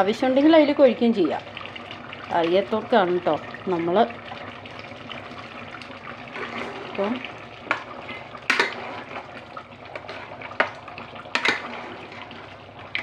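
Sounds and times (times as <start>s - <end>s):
liquid sloshing: 5.0s - 13.0s.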